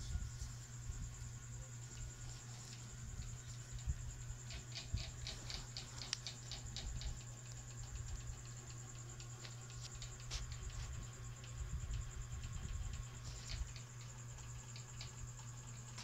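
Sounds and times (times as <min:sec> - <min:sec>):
insect trill: 0:00.0 - 0:16.0
light ticks: 0:02.6 - 0:10.7, 0:11.4 - 0:16.0.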